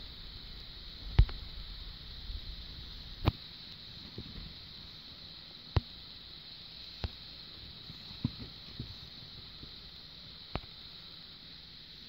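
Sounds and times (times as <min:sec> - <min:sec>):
steady hiss with high whine: 0:00.0 - 0:12.0
faint ticks: 0:00.5 - 0:01.7, 0:02.6 - 0:05.0, 0:05.7 - 0:11.2.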